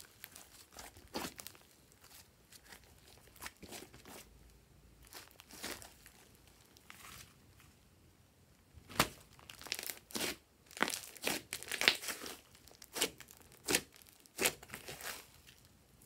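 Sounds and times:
slime squishing and popping: 8.9s - 15.2s.

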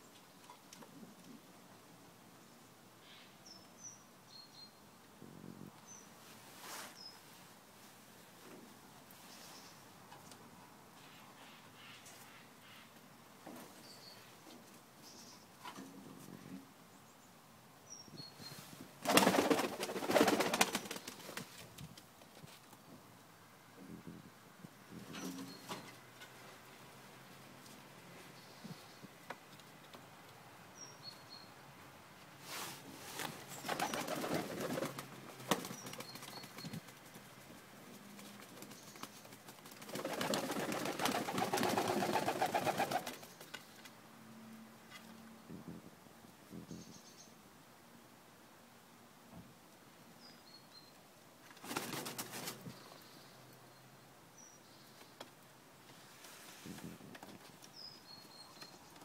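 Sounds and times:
pigeon wings flapping: 19.0s - 21.6s, 33.7s - 37.2s, 38.2s - 43.2s, 51.6s - 52.6s.

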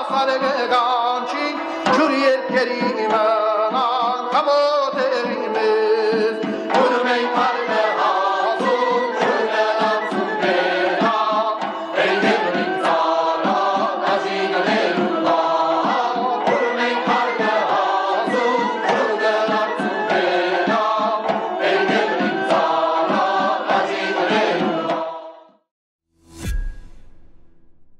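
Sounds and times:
choir singing folk music: 0.0s - 25.6s.

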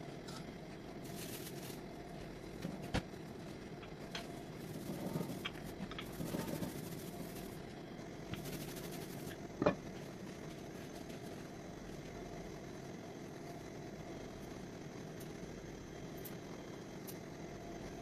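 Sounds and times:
rolling pin rolling dough: 0.0s - 12.3s.

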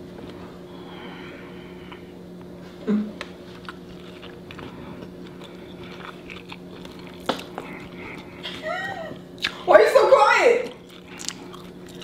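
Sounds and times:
steady low hum: 0.0s - 12.0s
crunchy food chewing: 3.5s - 8.6s, 10.6s - 12.0s.

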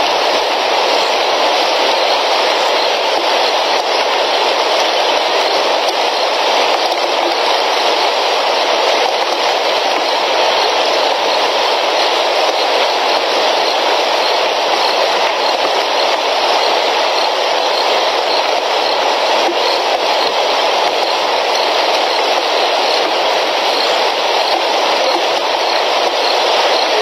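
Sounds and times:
heavy rain: 0.0s - 27.0s
rushing water: 0.0s - 27.0s.

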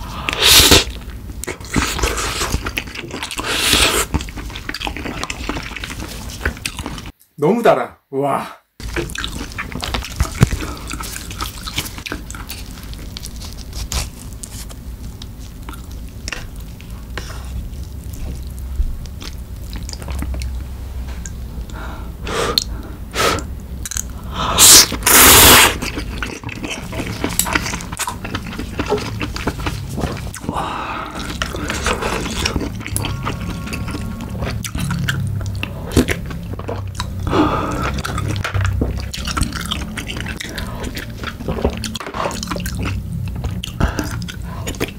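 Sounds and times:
slurping noodles: 0.0s - 0.9s, 1.7s - 6.3s, 24.5s - 34.7s
chewing with wet clicks: 1.0s - 3.4s, 4.1s - 7.2s, 8.8s - 13.8s, 15.2s - 20.6s, 23.8s - 24.2s, 25.8s - 44.9s.

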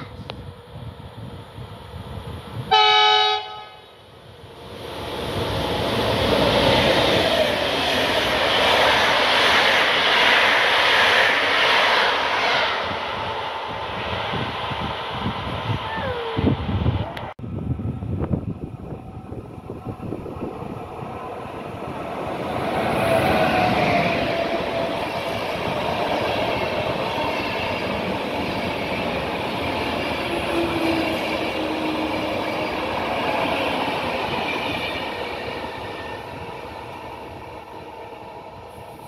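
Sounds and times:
passenger train passing: 0.0s - 39.0s
train wheels on rails: 4.1s - 39.0s.

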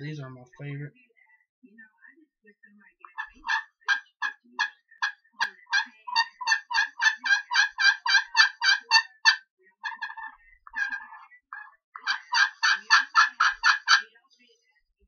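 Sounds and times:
friction turkey call notes: 3.1s - 14.0s.

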